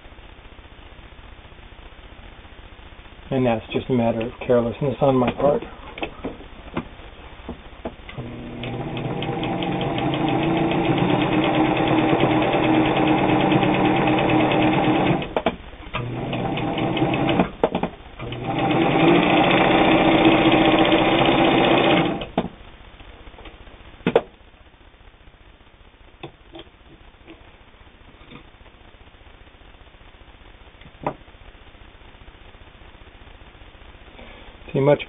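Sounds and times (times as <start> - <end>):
sewing machine stitching: 8.2 - 22.4.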